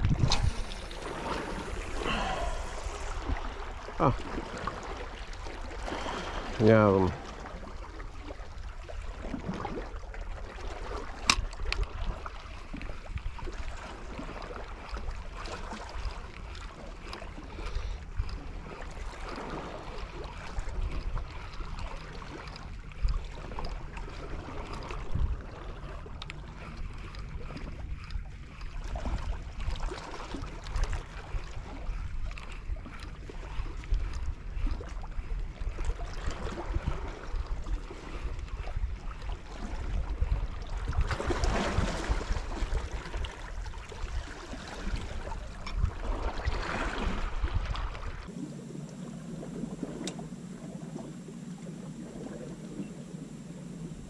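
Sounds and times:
sea washing against rocks: 0.0s - 8.0s, 39.4s - 54.0s
wind buffeting microphone: 0.0s - 48.3s.

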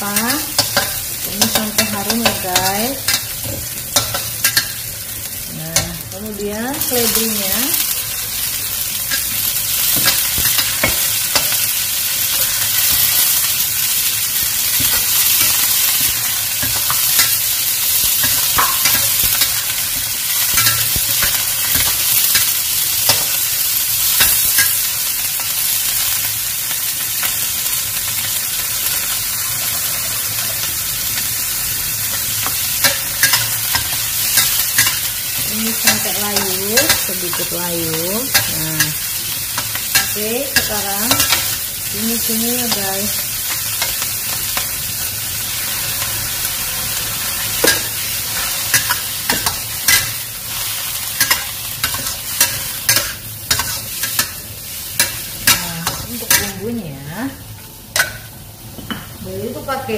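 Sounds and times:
vegetables sizzling in a wok: 0.0s - 59.9s
metal spatula scraping and tapping: 0.6s - 4.8s, 51.2s - 54.4s, 57.9s - 59.1s.

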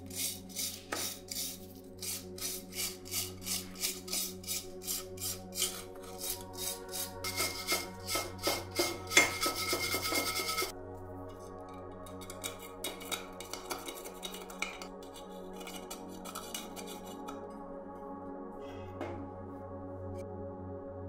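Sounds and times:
wire brush scrubbing metal: 0.0s - 10.7s, 12.1s - 17.4s.

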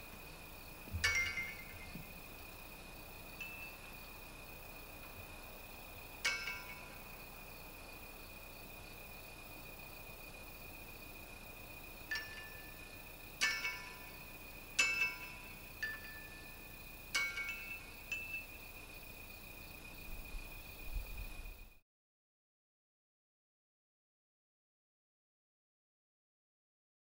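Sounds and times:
bell ringing: 1.0s - 1.9s, 14.8s - 16.4s.

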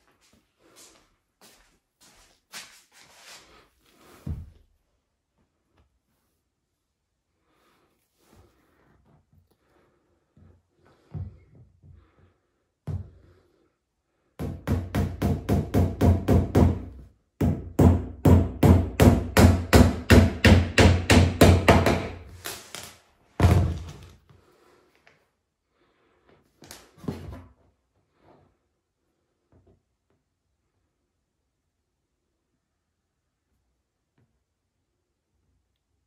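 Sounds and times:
hammer driving nails: 14.4s - 23.9s.

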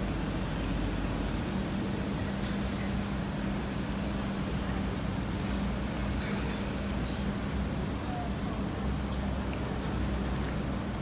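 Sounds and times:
background noise wash: 0.0s - 11.0s.

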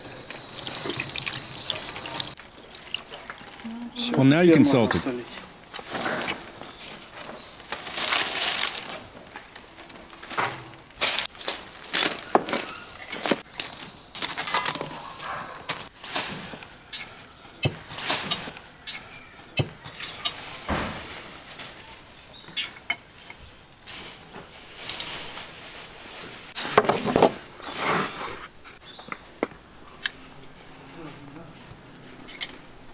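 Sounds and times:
rustling and clattering: 5.3s - 28.0s
metal skewers clinking: 16.9s - 20.4s, 22.5s - 23.1s.

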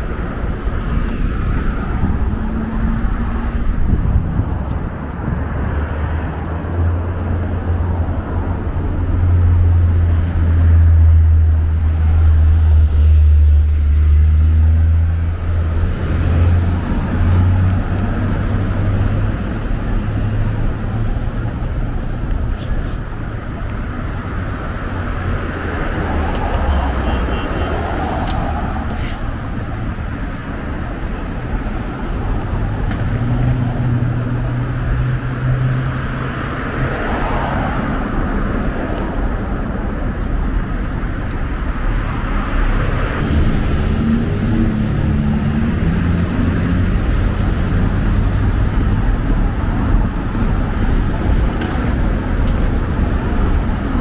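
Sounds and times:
cars driving past: 0.0s - 54.0s.

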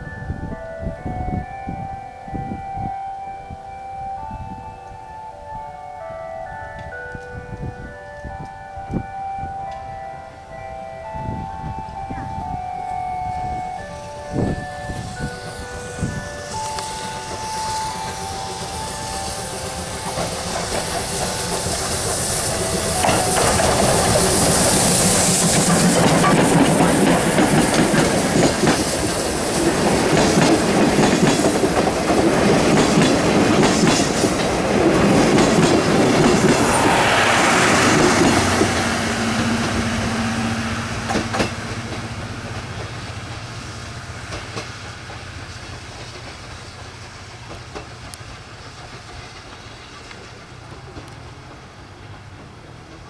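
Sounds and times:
steam locomotive working: 0.0s - 53.0s
wheels clattering over rail joints: 15.1s - 53.0s.

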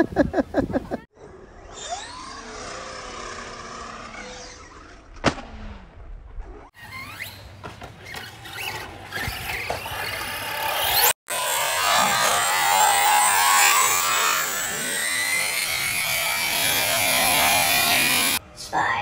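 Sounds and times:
electric motor whining: 9.2s - 18.4s.

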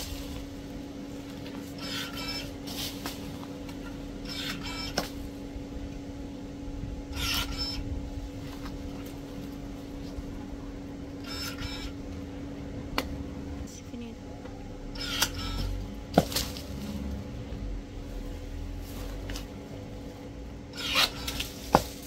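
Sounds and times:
cordless pruning shears whining: 0.0s - 13.2s, 14.4s - 17.8s, 18.8s - 22.0s
branch snapping: 16.1s - 16.8s.

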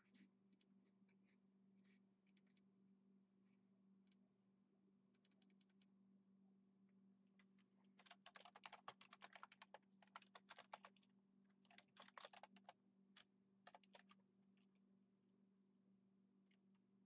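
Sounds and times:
typing on keyboard: 7.9s - 14.2s.

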